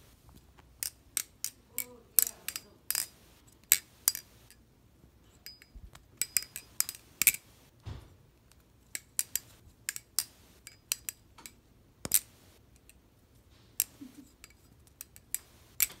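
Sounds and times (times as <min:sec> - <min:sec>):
butterfly knife clicking and clacking: 0:00.8 - 0:03.1, 0:03.7 - 0:04.3, 0:05.4 - 0:07.4, 0:09.0 - 0:13.0.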